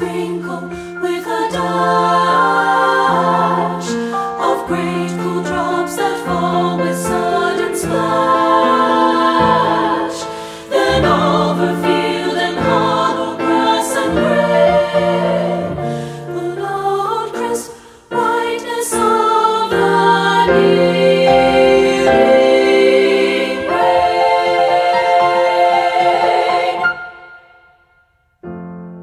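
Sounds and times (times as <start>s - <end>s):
women's choir singing: 0.0s - 27.8s
piano accompaniment: 0.0s - 29.0s.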